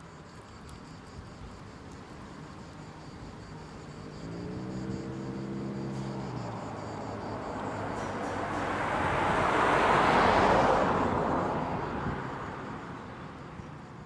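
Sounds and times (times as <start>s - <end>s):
street noise: 0.0s - 14.0s
tram approaching: 4.8s - 14.0s.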